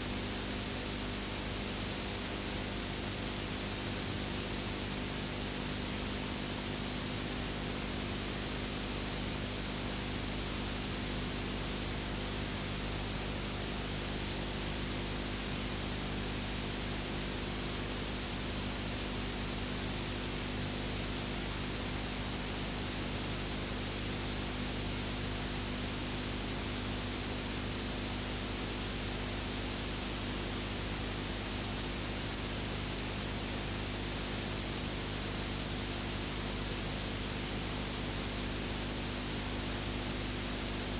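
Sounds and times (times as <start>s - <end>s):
low electrical hum: 0.0s - 5.2s.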